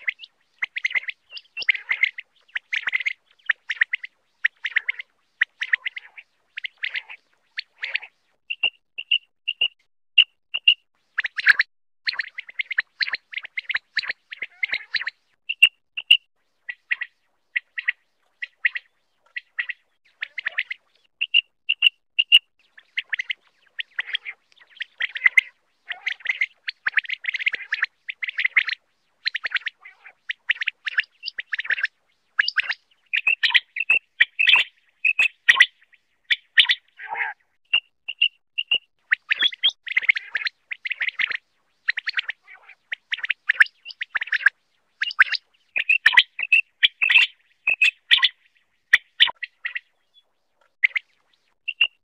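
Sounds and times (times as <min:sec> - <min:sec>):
quail chirping calls: 0:00.0 - 0:52.0.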